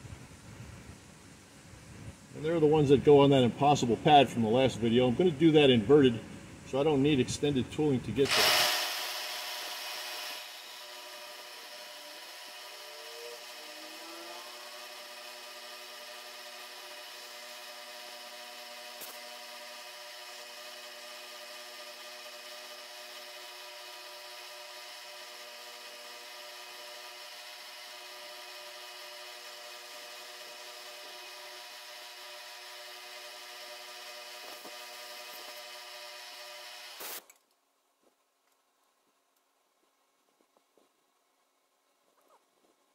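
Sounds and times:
milling machine whine: 0:08.2 - 0:37.3.

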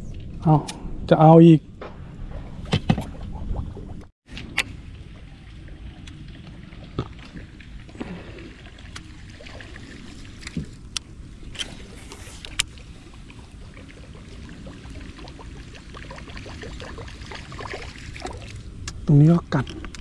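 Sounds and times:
low rumble: 0:00.0 - 0:19.1
water lapping at hull: 0:04.7 - 0:18.9.

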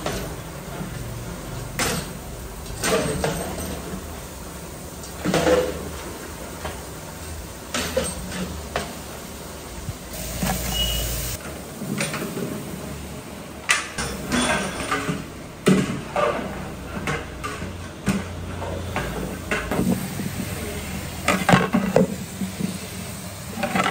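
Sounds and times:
metal ladle clanking on pots: 0:01.6 - 0:04.2, 0:06.6 - 0:09.0, 0:13.7 - 0:20.2, 0:21.2 - 0:22.7.

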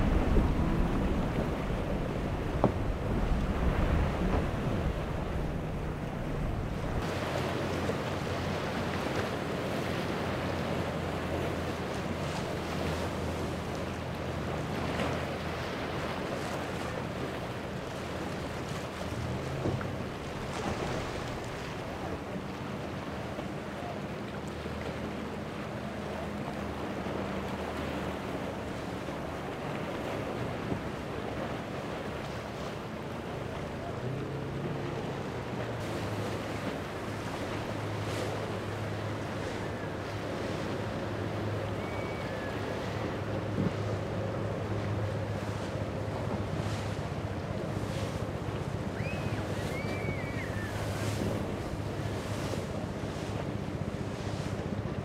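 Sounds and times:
wind buffeting microphone: 0:00.0 - 0:22.4
outboard engines humming: 0:00.0 - 0:55.0
waves breaking: 0:00.0 - 0:55.0.

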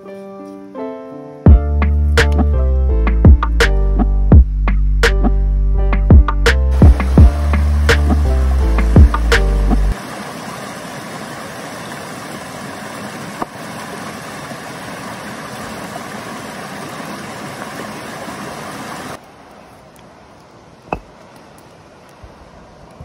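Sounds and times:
stream rushing over rocks: 0:06.7 - 0:22.9.

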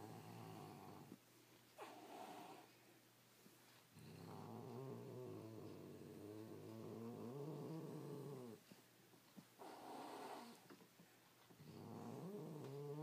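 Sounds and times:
cat growling: 0:04.0 - 0:08.6, 0:11.6 - 0:13.0.

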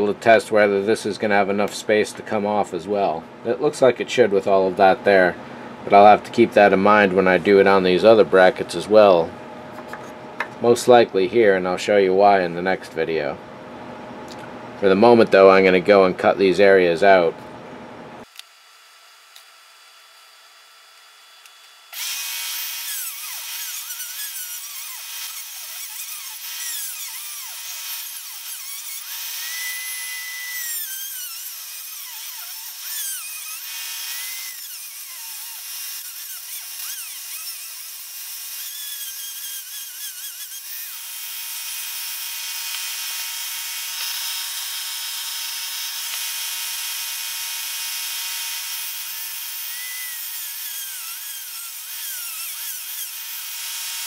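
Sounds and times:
rotary tool cutting wood: 0:19.3 - 0:54.0.

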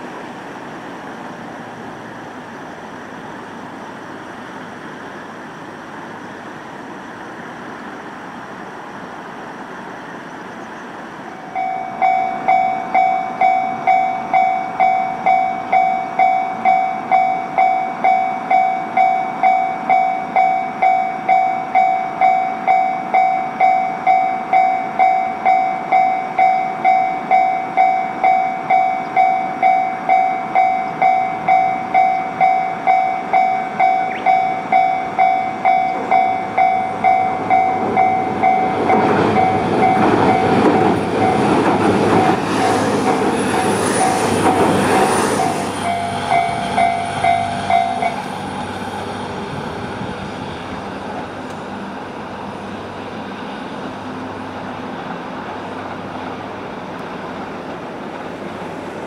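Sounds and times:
train running noise: 0:00.0 - 0:59.0
level crossing bell ringing: 0:11.6 - 0:41.4, 0:45.8 - 0:48.2.

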